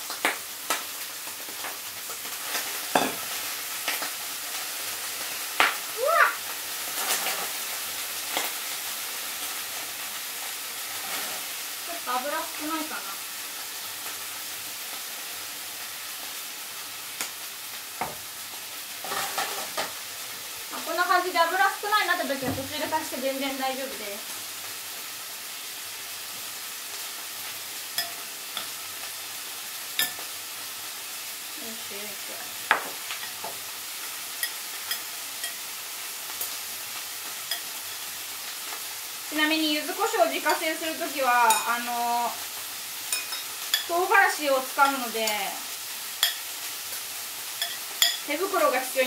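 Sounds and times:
vegetables sizzling in a frying pan: 0.0 - 49.0.

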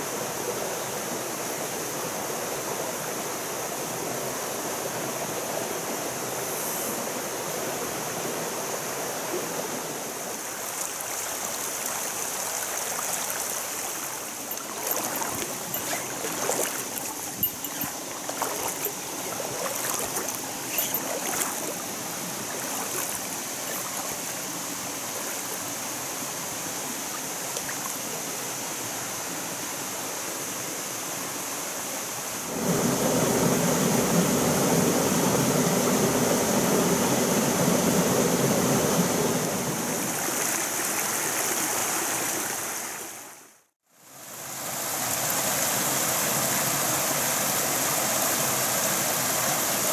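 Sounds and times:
stream running over stones: 4.9 - 32.9, 39.8 - 43.4
splashes and knocks: 14.5 - 21.8, 22.4 - 24.5.

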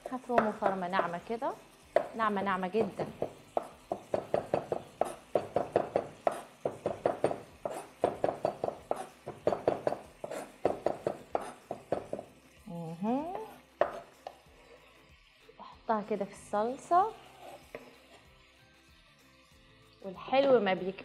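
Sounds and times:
knife chopping on wooden board: 0.3 - 0.8, 1.9 - 2.2, 2.8 - 12.3, 13.8 - 14.1.

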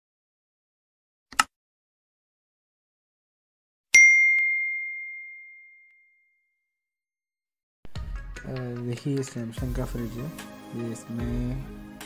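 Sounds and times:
bell ding: 4.0 - 6.5.

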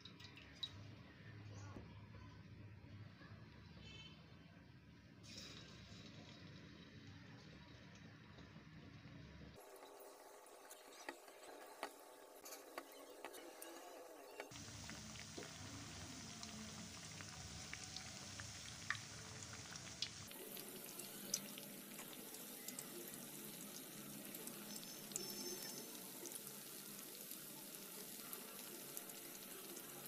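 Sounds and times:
food frying in hot oil: 9.6 - 30.0.

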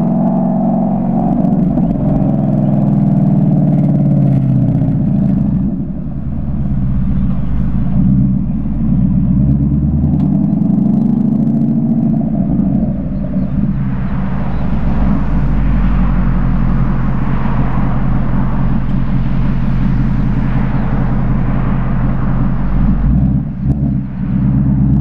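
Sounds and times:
car engine accelerating: 0.0 - 25.0
wind noise: 0.0 - 25.0.

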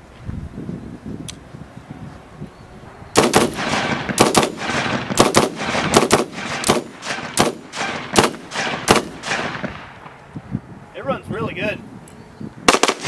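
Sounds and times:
rifle shots echoing: 3.2 - 10.2, 12.7 - 13.0.

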